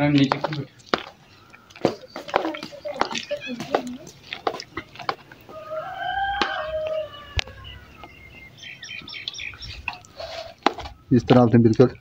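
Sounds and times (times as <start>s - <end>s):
small birds chirping: 0.0s - 12.0s
rooster crowing: 5.5s - 8.1s.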